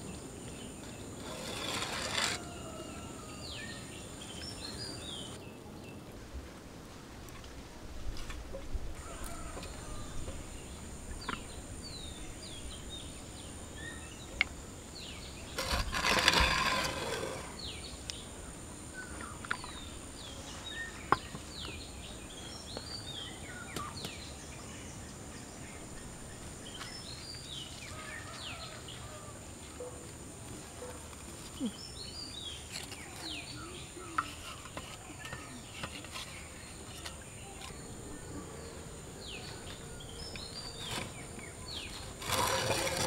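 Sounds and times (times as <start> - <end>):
small birds chirping: 31.4 - 43.0.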